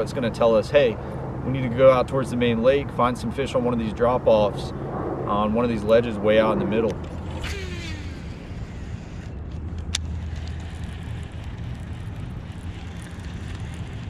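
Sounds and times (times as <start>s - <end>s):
electric boat motor humming: 7.0s - 14.0s.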